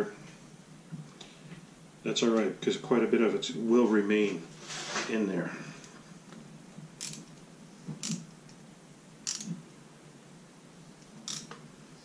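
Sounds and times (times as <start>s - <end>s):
meat injector sharp noises: 9.3s - 9.6s.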